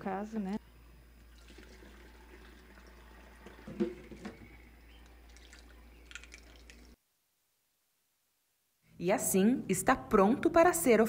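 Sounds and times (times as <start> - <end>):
liquid trickling into bottle: 1.2 - 7.0.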